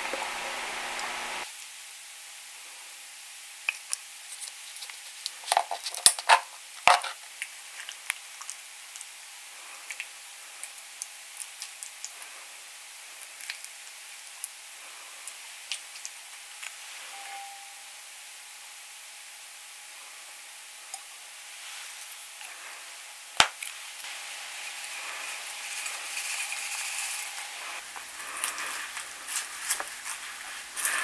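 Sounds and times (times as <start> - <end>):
plastic spoon scooping food: 24.5 - 31.0.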